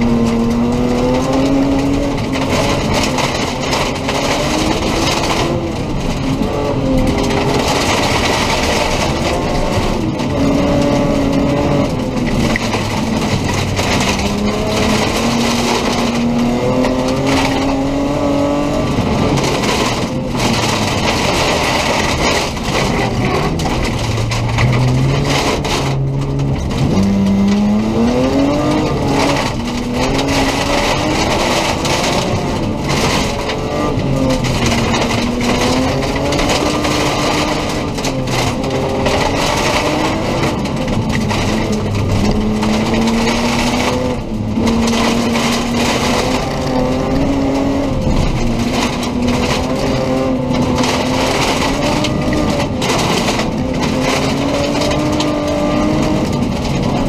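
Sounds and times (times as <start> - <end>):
car engine revving: 0.0 - 57.0
tyres on gravel: 0.0 - 57.0.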